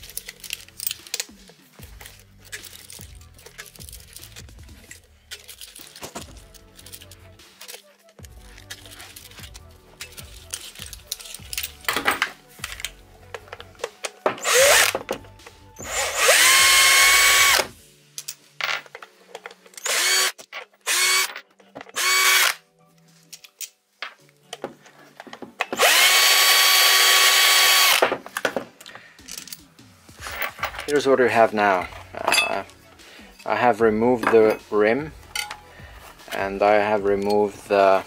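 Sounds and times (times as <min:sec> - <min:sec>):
screws clinking: 0:00.0 - 0:22.6, 0:28.8 - 0:38.0
cordless drill whining: 0:14.4 - 0:15.2, 0:15.8 - 0:17.7, 0:19.8 - 0:21.3, 0:22.0 - 0:22.6, 0:25.7 - 0:28.0.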